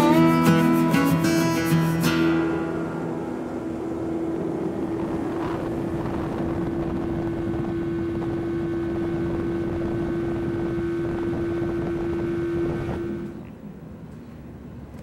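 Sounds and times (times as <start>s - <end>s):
outboard motor droning: 1.4s - 14.4s
rush of wind and water: 2.4s - 13.4s.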